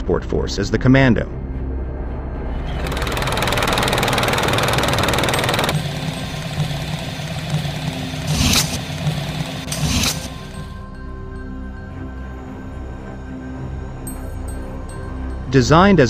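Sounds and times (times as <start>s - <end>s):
helicopter rotor and engine: 2.5s - 10.8s
loud noisy bursts: 2.6s - 10.6s.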